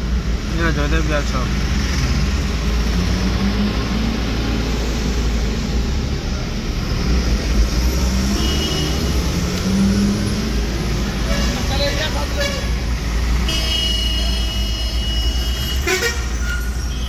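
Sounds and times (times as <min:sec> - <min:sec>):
car road noise rumble: 0:00.0 - 0:17.0.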